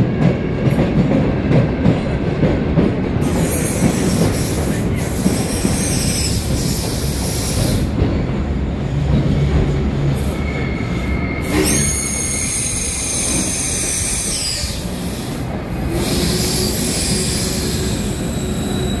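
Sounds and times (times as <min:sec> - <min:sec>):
train wheels rumbling on rails: 0:00.0 - 0:19.0
high-pitched wheel squeal: 0:10.2 - 0:14.8, 0:16.0 - 0:19.0.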